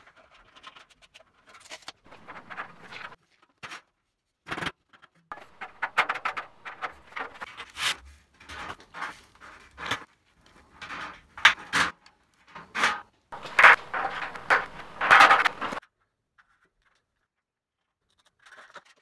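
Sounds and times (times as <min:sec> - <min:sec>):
metal studs clicking and scraping: 0:02.1 - 0:03.2, 0:05.3 - 0:07.5, 0:13.4 - 0:15.8.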